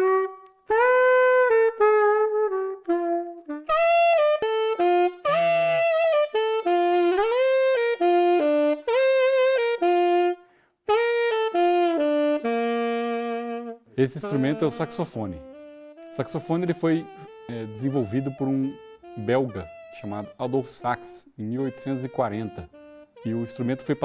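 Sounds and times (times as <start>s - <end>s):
tenor saxophone melody: 0.0s - 24.0s.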